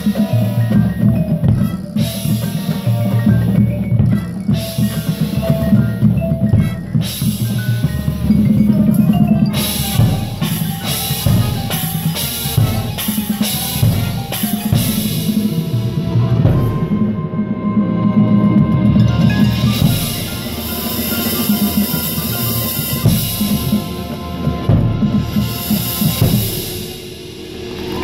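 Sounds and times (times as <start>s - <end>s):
vibraphone ringing: 0.0s - 15.8s, 18.6s - 24.3s
marching band playing: 0.0s - 28.0s
sharp drum and cymbal hits: 0.0s - 28.0s.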